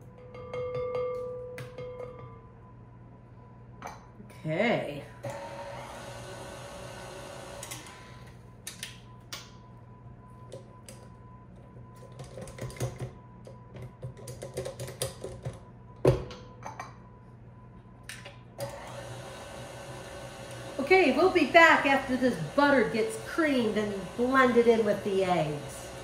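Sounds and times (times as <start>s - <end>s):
electric stand mixer running: 5.2s - 8.3s, 18.6s - 26.0s.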